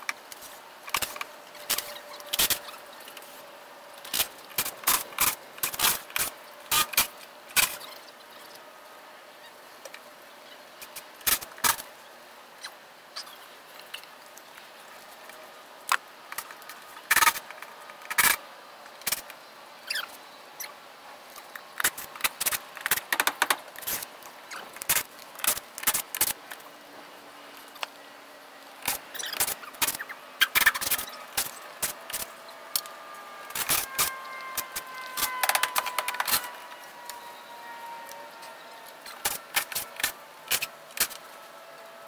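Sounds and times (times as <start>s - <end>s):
wood strips clicking and scraping: 15.2s - 19.4s, 21.4s - 26.7s, 33.5s - 36.8s.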